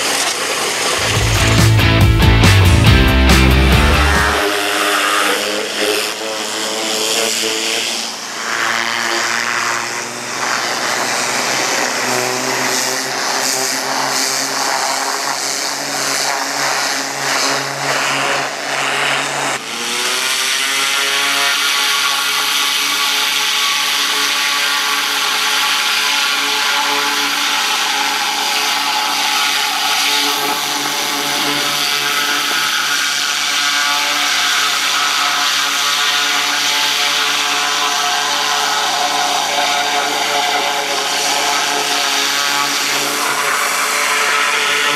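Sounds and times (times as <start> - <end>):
gasoline engine running: 1.0 - 4.5
water jet hissing: 25.3 - 44.9.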